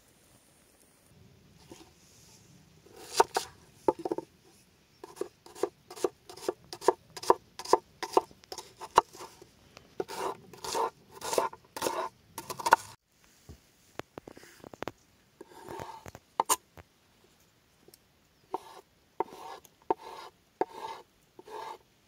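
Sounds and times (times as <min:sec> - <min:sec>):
knife scraping on board: 0:02.9 - 0:04.2, 0:05.0 - 0:09.4, 0:10.0 - 0:13.0, 0:15.4 - 0:16.6, 0:18.5 - 0:21.8
knife cutting onion on wooden board: 0:02.9 - 0:04.3, 0:05.0 - 0:09.4, 0:10.0 - 0:13.0, 0:15.4 - 0:16.6, 0:18.5 - 0:21.8.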